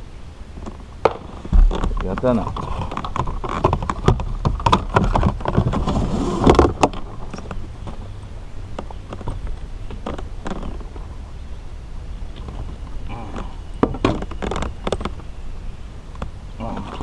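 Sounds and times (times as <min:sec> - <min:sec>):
fish knocking and splashing: 0:01.4 - 0:05.8.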